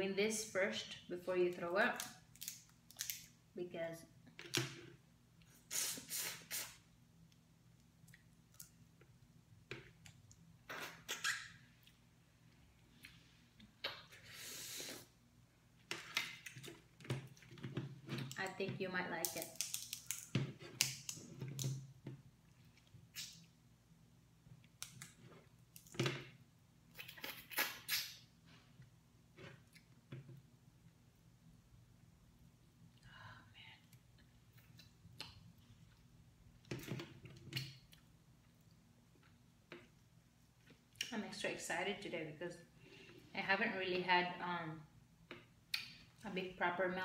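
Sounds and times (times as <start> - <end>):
crab shell cracking: 2.3 - 3.3, 19.2 - 21.7
wet hissing bursts: 5.6 - 6.8.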